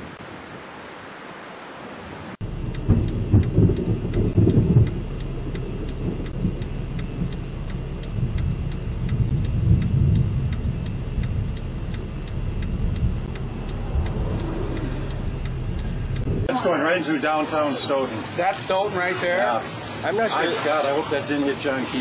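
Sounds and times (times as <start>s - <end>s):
low rumble of wind: 0.0s - 17.4s
even ticking: 2.4s - 16.5s.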